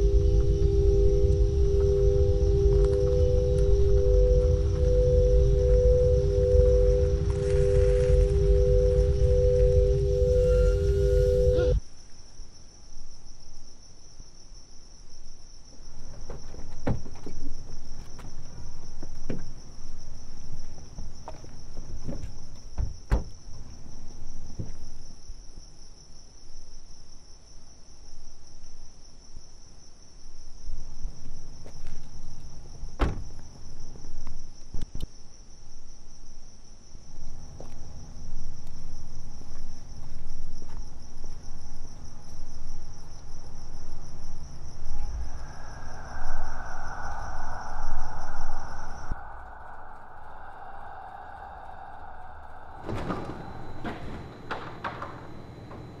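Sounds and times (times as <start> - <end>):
loud steady drone: 0.0 - 11.8
low rumble: 0.0 - 11.8, 37.2 - 55.0
crickets chirping: 0.0 - 56.0.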